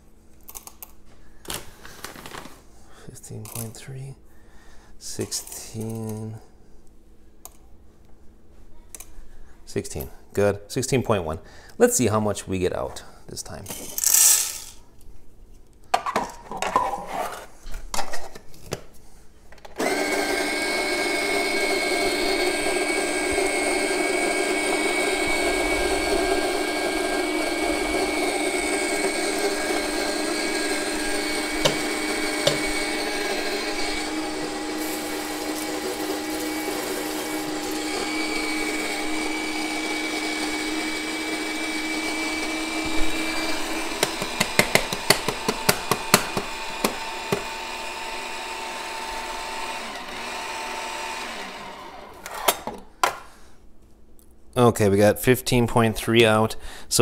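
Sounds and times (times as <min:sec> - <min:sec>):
coffee grinder motor whine: 0:19.8 - 0:52.6.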